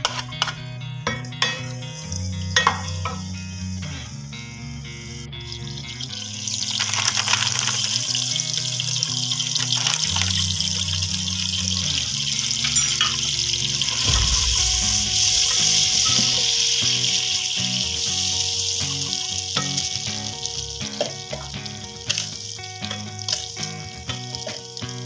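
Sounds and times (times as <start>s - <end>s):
spoon tapping pot: 0.0s - 1.8s, 2.6s - 3.3s
background music: 0.0s - 25.0s
food sizzling in hot fat: 1.3s - 25.0s.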